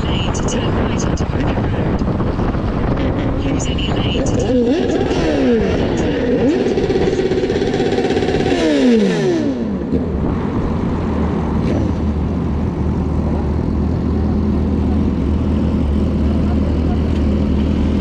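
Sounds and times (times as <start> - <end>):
wind noise: 0.0 - 9.2
motorcycle engine running: 0.0 - 18.0.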